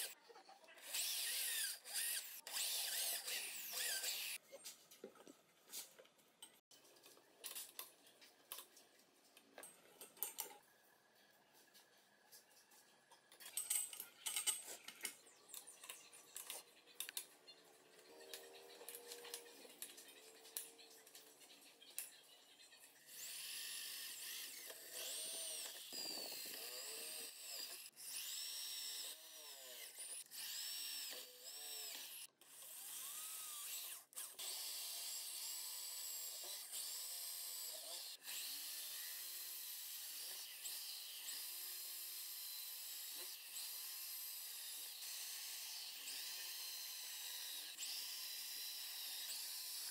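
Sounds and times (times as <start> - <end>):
electric drill boring into rubber: 0.8 - 4.4, 23.1 - 49.9.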